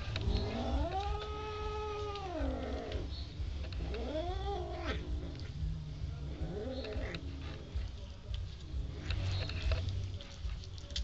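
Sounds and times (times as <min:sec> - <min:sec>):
cats yowling: 0:00.2 - 0:03.1, 0:03.8 - 0:05.4.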